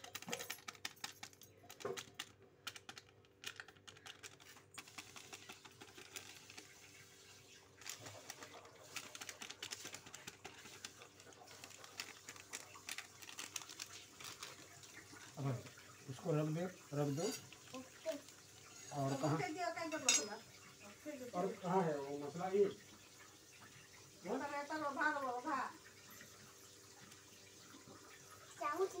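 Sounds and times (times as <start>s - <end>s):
plastic packet rustling: 0.0s - 19.5s.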